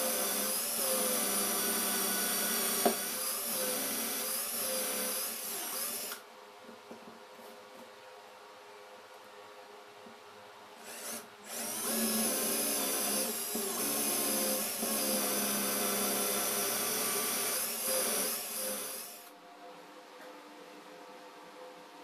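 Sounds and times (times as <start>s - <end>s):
cordless drill boring into wood: 0.0s - 6.2s, 10.8s - 19.3s.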